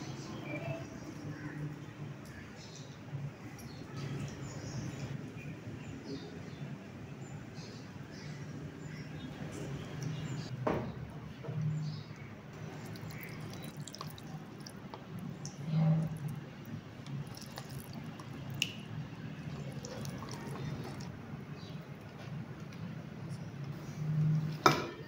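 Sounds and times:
wet squishing and dripping: 12.6 - 21.2.

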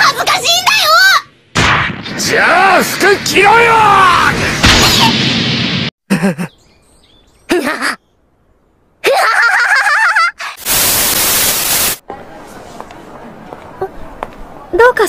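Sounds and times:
tv static hiss: 10.6 - 12.0.

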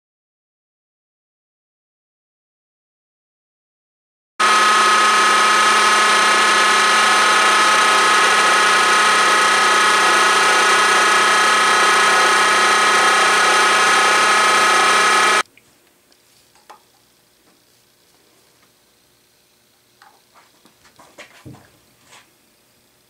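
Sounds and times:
milling machine cutting metal whine: 4.4 - 15.4.

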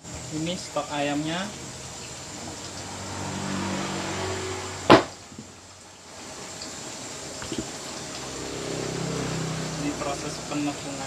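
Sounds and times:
sharp knock: 4.9 - 5.2.

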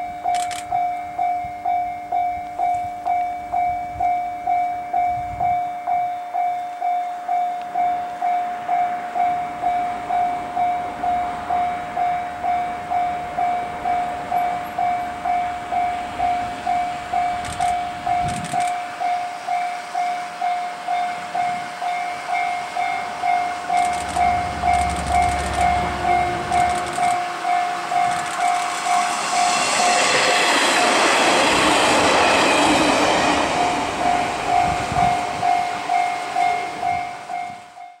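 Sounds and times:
diesel train passing: 7.1 - 38.0
level crossing bell ringing: 34.5 - 38.0.

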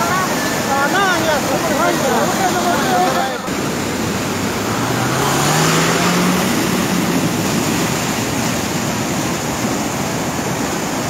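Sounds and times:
floodwater rushing: 0.0 - 11.0
vehicle engine revving: 3.5 - 9.6.

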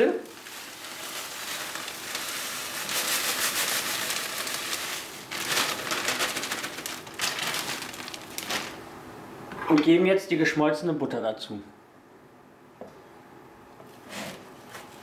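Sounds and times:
crumbs pouring into plastic bowl: 0.0 - 8.8
plastic bag rustling: 0.0 - 9.0.

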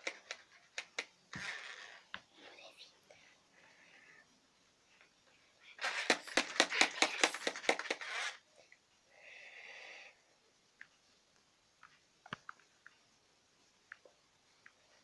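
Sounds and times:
bubble wand rattling and clicking: 5.8 - 8.3.

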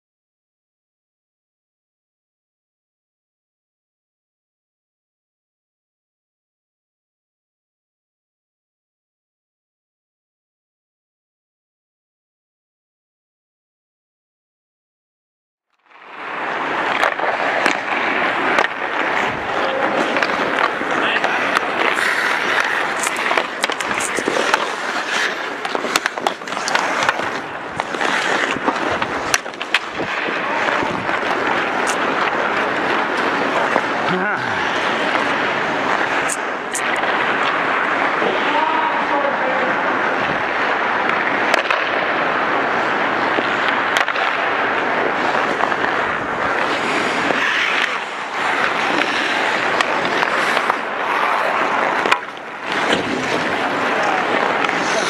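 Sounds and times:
skate blades scraping ice: 15.8 - 55.0
hockey sticks and pucks clacking: 16.7 - 38.7, 41.0 - 42.1, 43.3 - 55.0
goalie gear rubbing: 16.9 - 36.9, 46.6 - 55.0.

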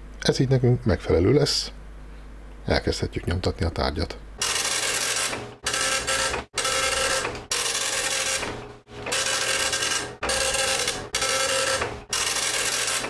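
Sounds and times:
printer motors whirring: 4.4 - 13.0.

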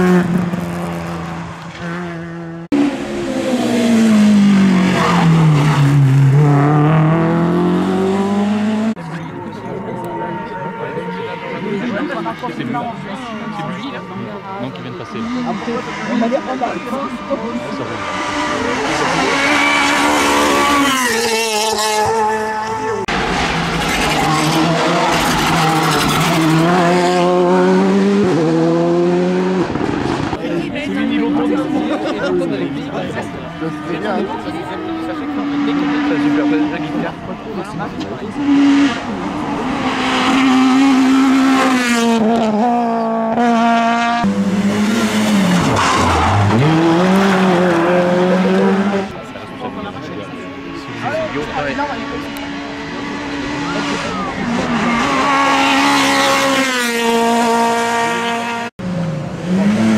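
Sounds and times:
rally car accelerating away: 0.0 - 59.9.

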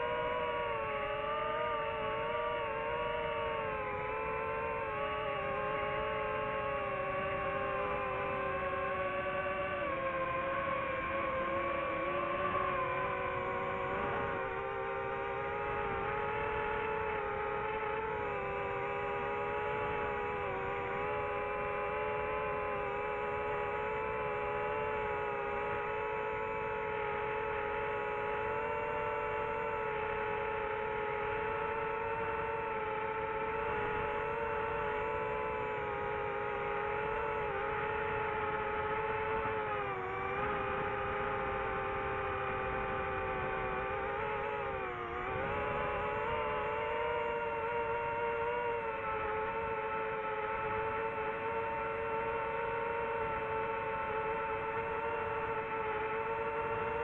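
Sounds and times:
drone propellers whining: 0.0 - 57.0.

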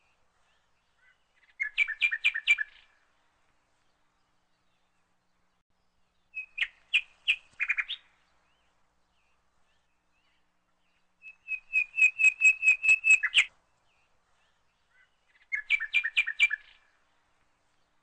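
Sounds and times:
small bird chirping: 0.5 - 3.0, 6.2 - 13.5, 14.4 - 16.9.

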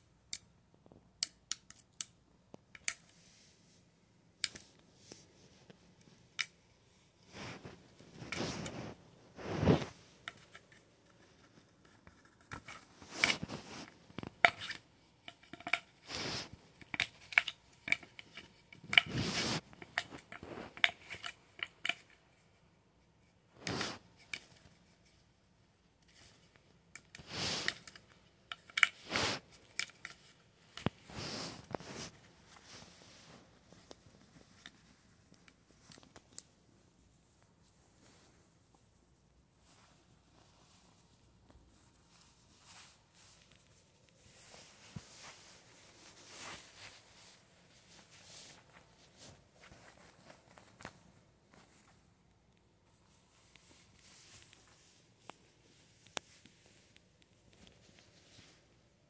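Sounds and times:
small clicks and scrapes: 0.3 - 3.5, 4.4 - 25.3, 26.0 - 36.6, 39.6 - 52.0, 52.8 - 58.6
bedding rustling and scratching: 7.2 - 14.6, 15.5 - 16.6, 17.9 - 21.2, 39.6 - 52.1.

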